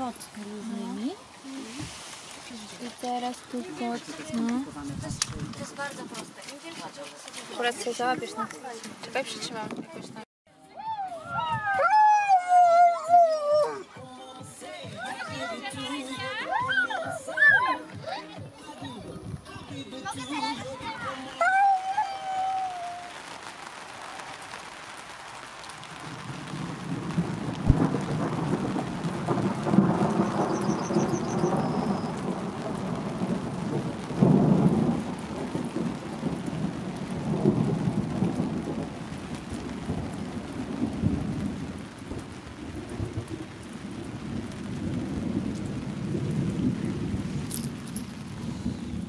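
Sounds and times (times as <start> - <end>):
rain hissing: 0.0 - 9.7, 13.3 - 49.0
rolling thunder: 25.8 - 49.0.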